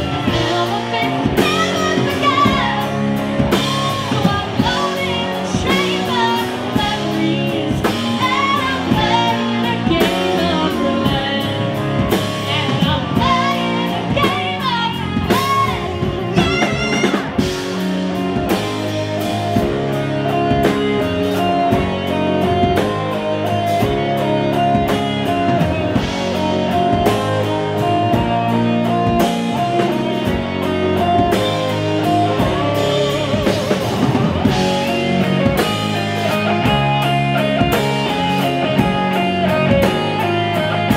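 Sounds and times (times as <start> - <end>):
woman singing lead vocal: 0.0 - 17.6
electric guitar lead: 0.0 - 40.9
rock band playing: 0.0 - 40.9.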